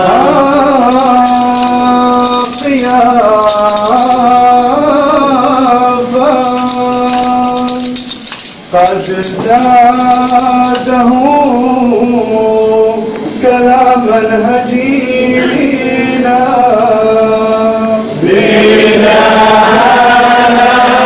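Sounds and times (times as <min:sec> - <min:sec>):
choir and congregation chanting: 0:18.2 - 0:21.0.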